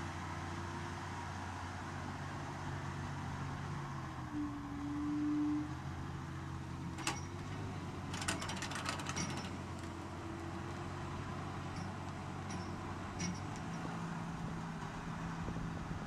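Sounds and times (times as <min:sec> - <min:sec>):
tractor diesel engine running: 0:05.7 - 0:16.0
rattling clicks: 0:08.1 - 0:09.9.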